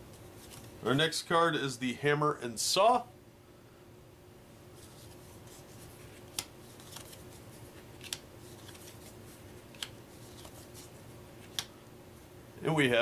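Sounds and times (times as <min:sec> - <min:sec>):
soft paper rustling: 0:00.1 - 0:00.8, 0:04.7 - 0:11.7.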